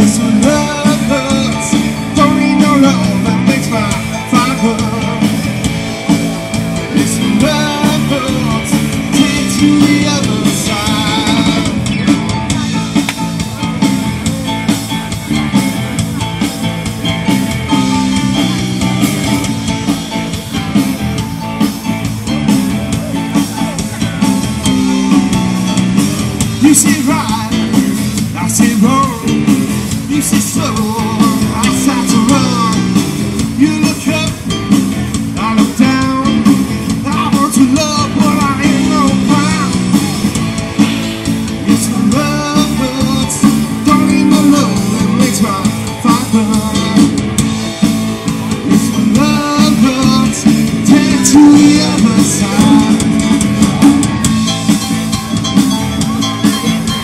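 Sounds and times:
person singing: 0.0s - 5.5s, 6.8s - 12.8s, 26.5s - 40.4s, 41.7s - 47.2s, 48.3s - 54.0s
drum kit: 0.0s - 57.0s
guitar: 0.0s - 57.0s.

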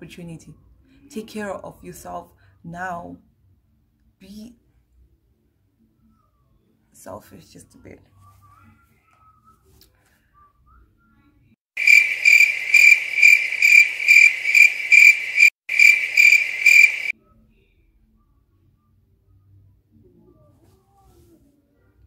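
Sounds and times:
cricket chirping: 11.8s - 17.1s.

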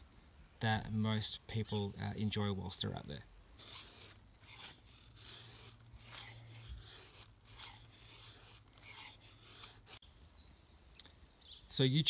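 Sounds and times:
knife scraping wooden stick: 3.6s - 10.0s.

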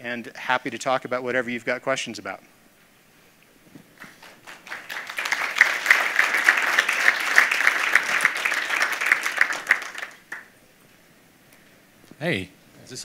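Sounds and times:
audience applauding: 4.0s - 10.5s
person clapping: 4.0s - 10.5s.

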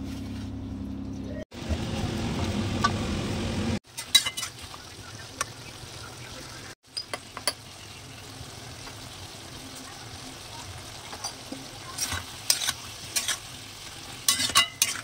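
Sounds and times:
frying sizzle: 1.5s - 15.0s
metal spatula clinking on pan: 4.0s - 4.5s, 14.3s - 15.0s.

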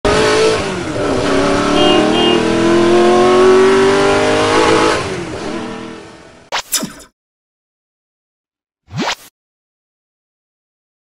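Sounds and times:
car engine revving: 0.0s - 6.5s.

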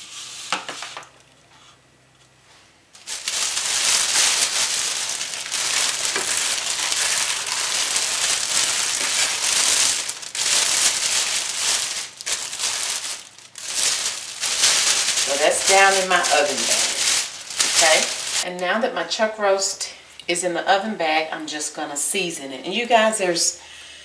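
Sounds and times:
plastic bag crinkling: 3.0s - 18.5s.

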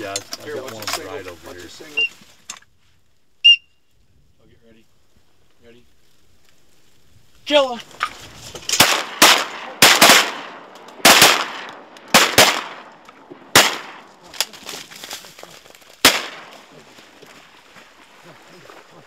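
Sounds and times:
shotgun shots: 8.7s - 14.3s, 16.0s - 16.8s.

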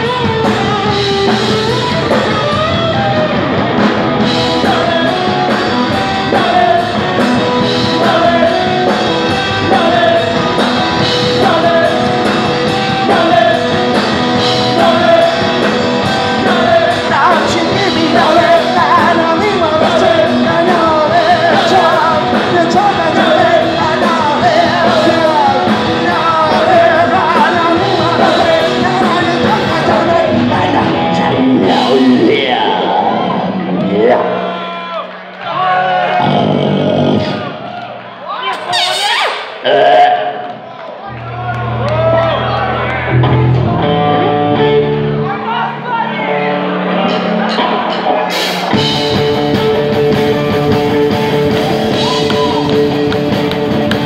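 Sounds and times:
electric guitar: 0.0s - 34.6s, 38.6s - 54.0s
drums: 0.0s - 39.7s, 41.1s - 54.0s
bass guitar: 0.0s - 54.0s
person singing: 4.4s - 33.4s, 49.7s - 54.0s.

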